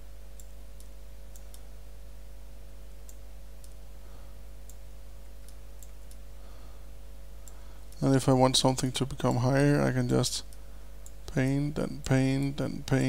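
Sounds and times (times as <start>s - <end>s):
low electrical hum: 0.0s - 13.0s
computer mouse clicking: 0.4s - 1.7s, 5.4s - 6.2s.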